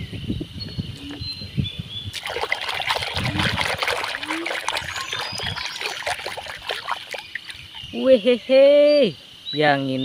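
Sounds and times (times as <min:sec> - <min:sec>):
soapy water splashing in a tub: 0:02.1 - 0:08.4.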